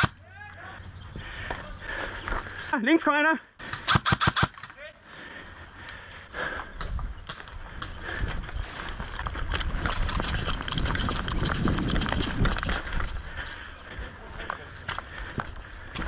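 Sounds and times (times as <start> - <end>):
running footsteps on grass: 5.1 - 16.0
gear rattling: 8.8 - 13.2.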